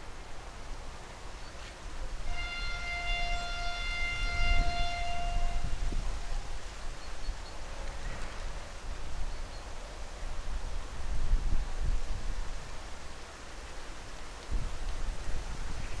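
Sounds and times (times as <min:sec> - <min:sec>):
locomotive horn: 0:02.2 - 0:06.0.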